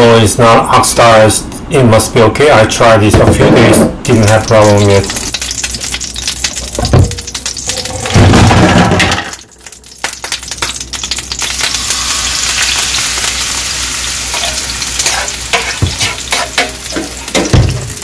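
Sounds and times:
batter sizzling in hot oil: 0:04.1 - 0:08.2, 0:09.3 - 0:18.0.

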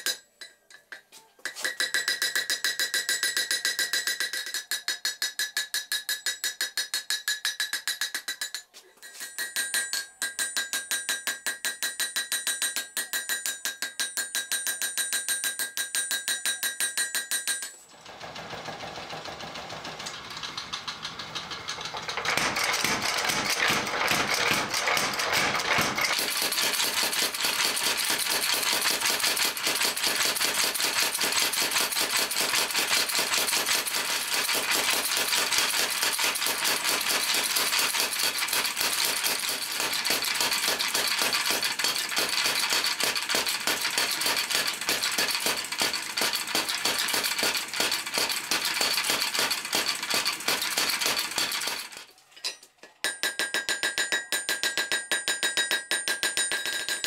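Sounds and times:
power hammer striking steel: 0:09.1 - 0:52.0.

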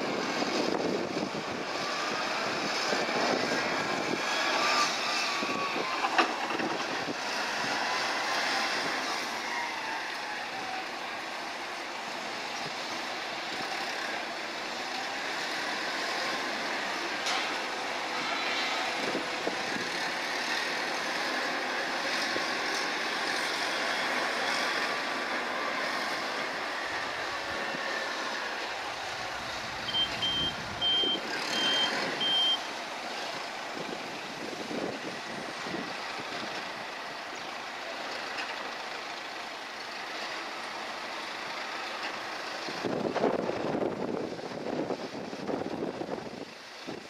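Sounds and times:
heavy machinery running: 0:14.9 - 0:37.0
reversing alarm beeps: 0:29.8 - 0:32.7.

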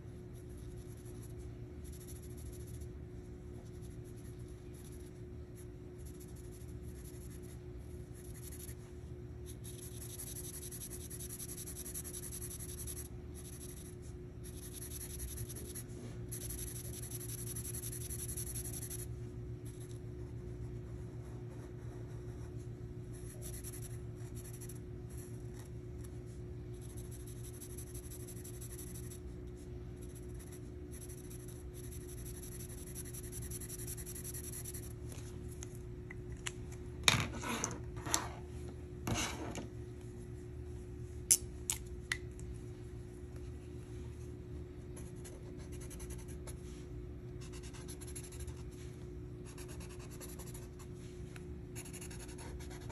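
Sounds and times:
steady low hum: 0:00.0 - 0:52.9
marker scratching on paper: 0:03.6 - 0:08.8, 0:09.5 - 0:19.1, 0:20.9 - 0:25.2, 0:26.8 - 0:29.3, 0:30.0 - 0:35.0, 0:49.4 - 0:50.8, 0:51.8 - 0:52.9.

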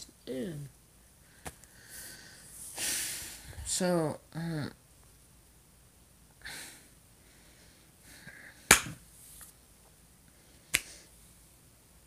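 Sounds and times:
person sniffing: 0:01.8 - 0:03.6.

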